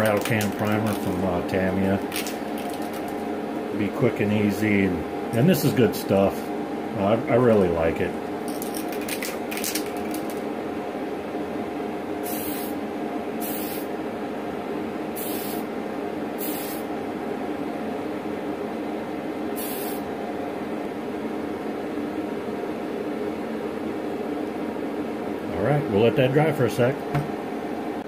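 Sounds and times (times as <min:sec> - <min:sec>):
steady hum: 0:00.0 - 0:28.0
aerosol can spraying: 0:12.3 - 0:12.8, 0:13.4 - 0:13.9, 0:15.2 - 0:15.6, 0:16.4 - 0:16.8, 0:19.6 - 0:20.0.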